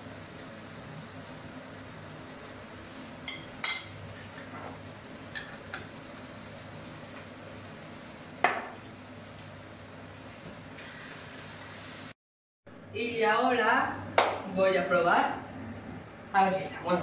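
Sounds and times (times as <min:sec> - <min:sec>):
sauce simmering in pan: 0:00.0 - 0:03.4.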